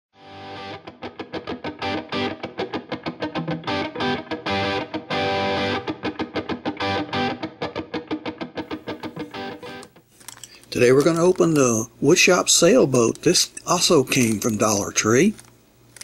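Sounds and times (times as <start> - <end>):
guitar picking and chords: 0.2 - 10.0.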